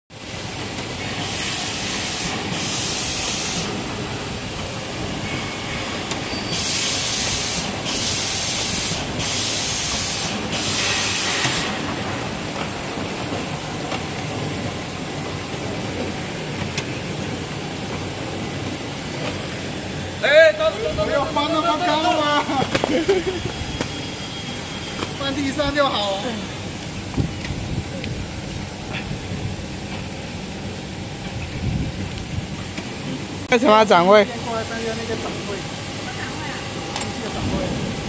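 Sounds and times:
packing machine running: 0:00.2 - 0:38.0
loud hissing bursts: 0:01.0 - 0:12.5.

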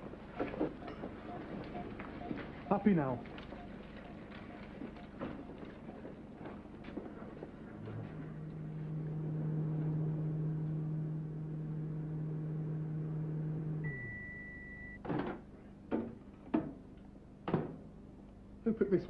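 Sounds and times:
microwave oven humming: 0:00.0 - 0:19.0
microwave beep: 0:00.4 - 0:05.6, 0:13.8 - 0:15.0.

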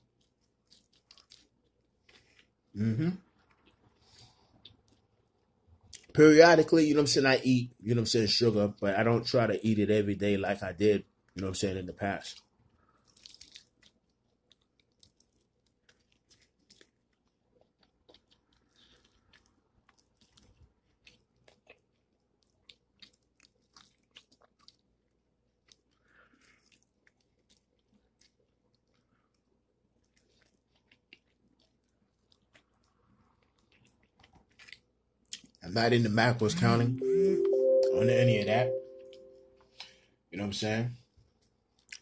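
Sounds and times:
person chewing crunchy food: 0:00.0 - 0:06.1, 0:12.2 - 0:35.6, 0:41.3 - 0:42.0.

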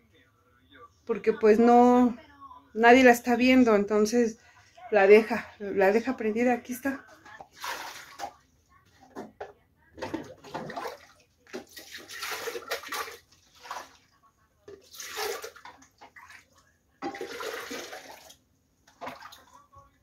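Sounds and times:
water splashing in a sink: 0:07.4 - 0:08.4, 0:10.0 - 0:19.8
dishes clattering: 0:09.1 - 0:11.0.

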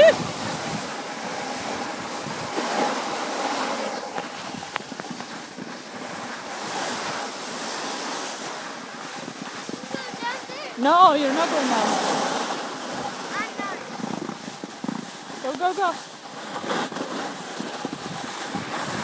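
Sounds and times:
snowboard sliding over snow: 0:00.0 - 0:19.0
wind on microphone: 0:00.0 - 0:19.0.

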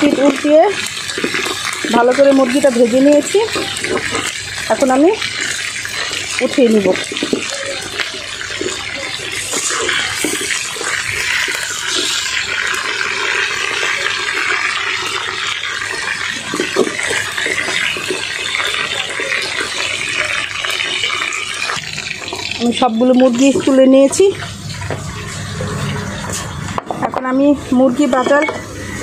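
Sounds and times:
chicken sizzling in oil: 0:00.0 - 0:29.0
spatula scraping wok: 0:08.3 - 0:13.5.

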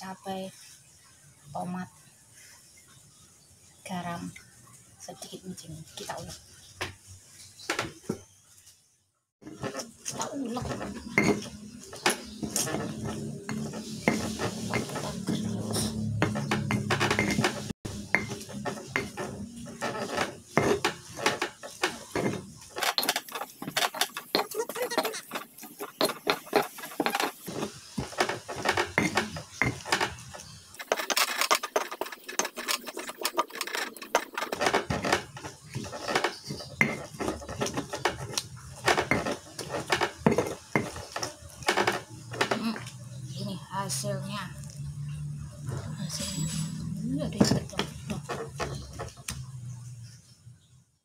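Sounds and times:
stone pestle grinding in mortar: 0:09.4 - 0:42.9.

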